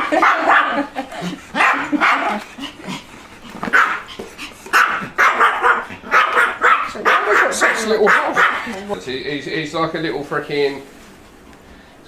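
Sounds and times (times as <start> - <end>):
small dog barking: 0.0 - 0.9, 1.6 - 2.4, 3.7 - 4.1, 4.7 - 8.7.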